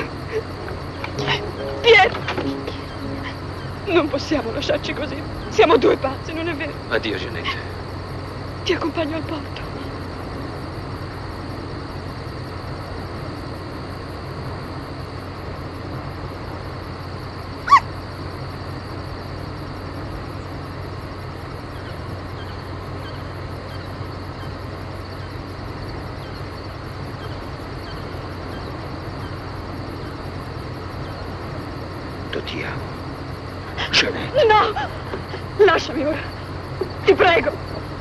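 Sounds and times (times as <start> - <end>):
car driving noise: 0.0 - 16.8, 26.8 - 38.0.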